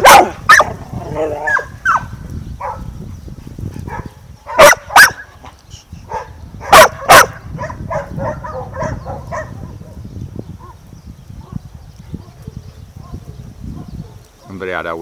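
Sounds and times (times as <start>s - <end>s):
dog yipping: 0.0s - 0.7s, 3.9s - 5.3s, 6.1s - 9.8s
dogs barking: 0.0s - 3.0s, 3.8s - 10.0s, 10.6s - 14.7s.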